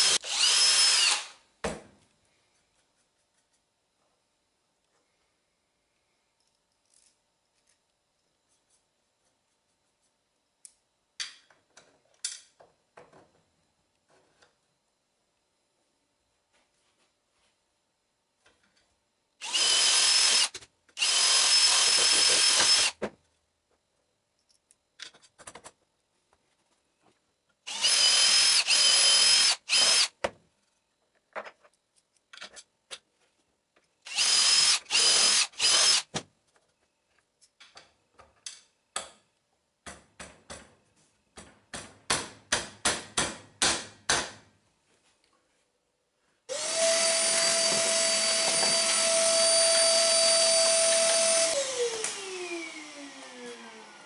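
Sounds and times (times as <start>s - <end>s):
cordless drill boring steel: 0.0s - 1.4s, 19.4s - 23.0s, 27.7s - 30.1s, 34.1s - 36.1s, 46.5s - 54.0s
shop vacuum running: 46.5s - 54.0s.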